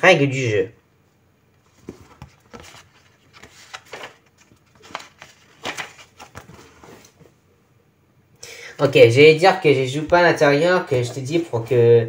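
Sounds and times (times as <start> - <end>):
paper pages rustling: 1.6 - 7.3.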